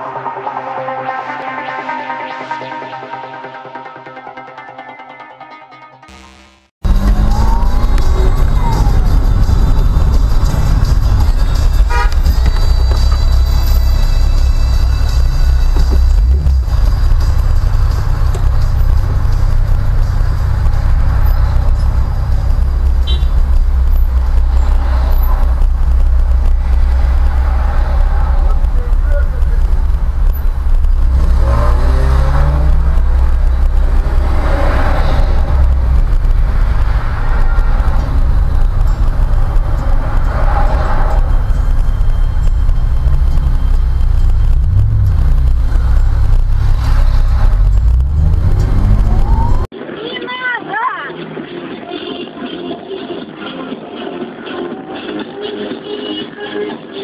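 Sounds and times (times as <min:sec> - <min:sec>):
car engine and road rumble: 0:06.8 - 0:49.9.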